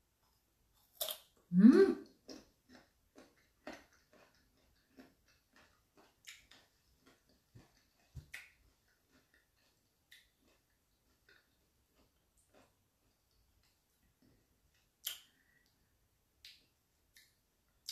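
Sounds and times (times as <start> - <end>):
person humming mm: 1.5 - 2.1
chewing crunches: 2.2 - 14.3.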